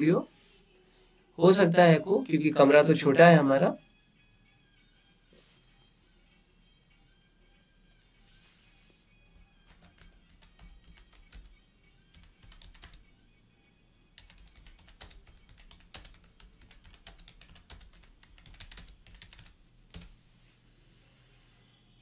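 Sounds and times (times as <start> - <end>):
faint typing on a keyboard: 9.4 - 13.0, 14.2 - 20.2.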